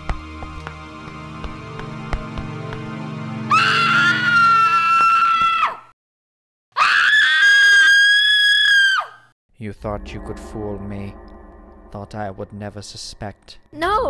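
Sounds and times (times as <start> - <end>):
low music: 0.0 - 4.2, 9.6 - 14.0
woman screaming: 3.5 - 5.8, 6.8 - 9.2.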